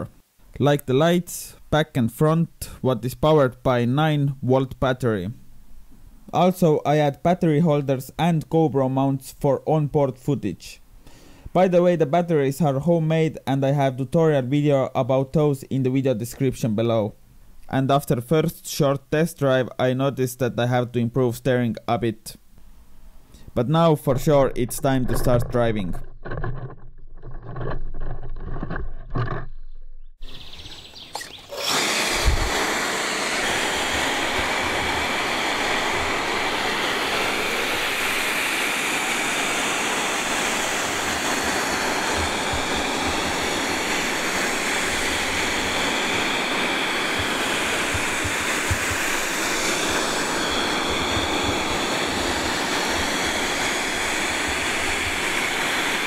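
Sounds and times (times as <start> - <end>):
ducted fans roaring: 31.4 - 56.0.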